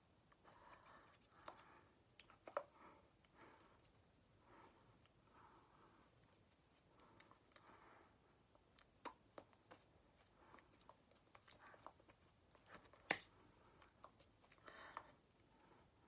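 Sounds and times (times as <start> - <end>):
hands tapping and rustling: 8.6 - 15.0.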